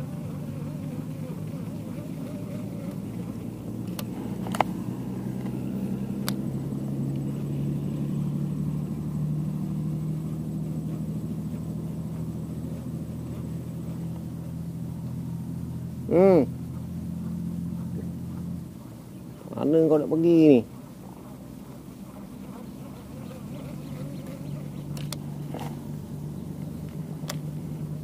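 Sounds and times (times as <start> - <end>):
low mechanical drone: 0.0 - 28.0.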